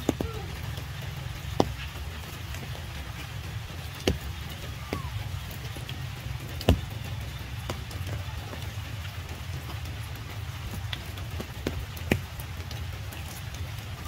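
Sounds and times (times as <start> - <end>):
rain falling: 0.0 - 14.0.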